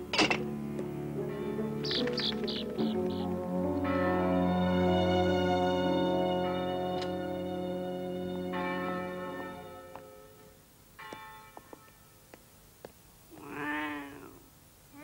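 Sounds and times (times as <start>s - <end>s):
church bells ringing: 1.1s - 12.2s
cat meowing: 13.3s - 15.0s.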